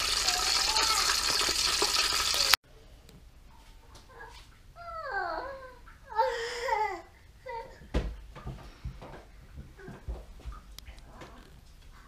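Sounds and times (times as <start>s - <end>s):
hot oil sizzling in deep fryer: 0.0s - 2.6s.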